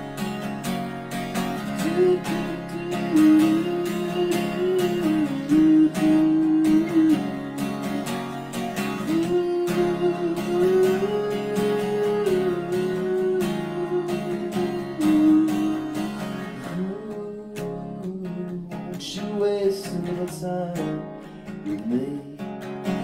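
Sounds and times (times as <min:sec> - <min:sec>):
acoustic guitar strumming: 0:00.0 - 0:23.0
man singing: 0:01.6 - 0:08.0, 0:08.9 - 0:22.6.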